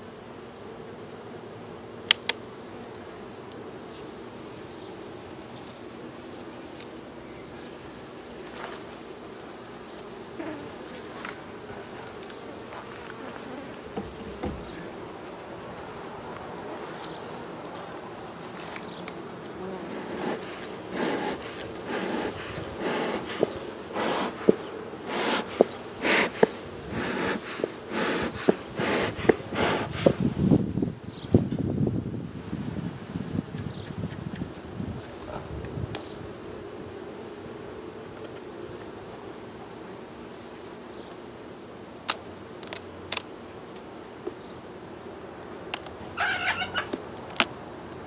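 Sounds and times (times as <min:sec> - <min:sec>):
bellows smoker hissing puffs: 0:19.6 - 0:30.5.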